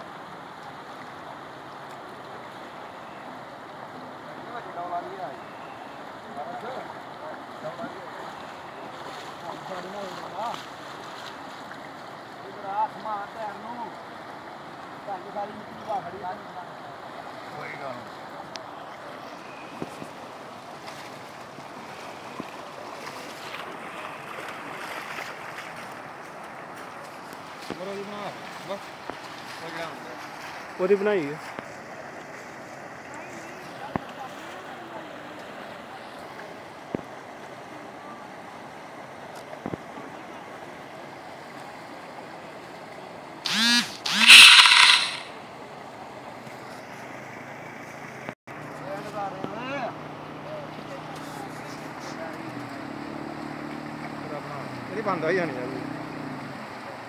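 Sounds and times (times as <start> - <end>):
floodwater rushing: 0.0 - 46.2.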